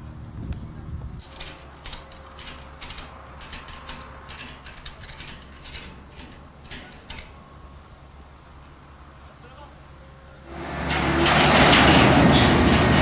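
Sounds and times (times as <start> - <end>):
ratchet winch clicking: 1.2 - 7.5.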